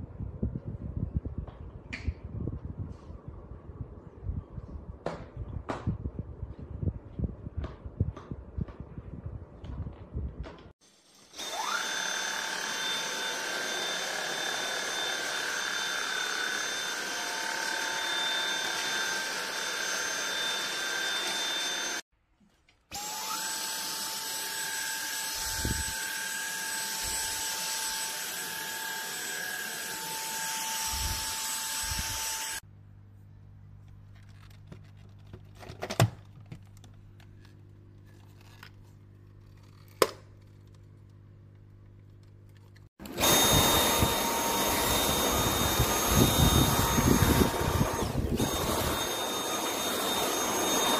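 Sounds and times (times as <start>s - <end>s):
vacuum cleaner whine: 10.8s - 22.0s, 22.9s - 32.6s, 43.0s - 50.9s.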